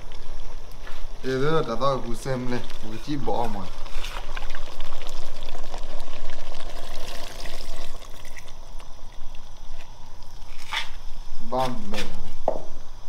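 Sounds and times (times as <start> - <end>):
liquid pouring and splashing: 2.3 - 9.3.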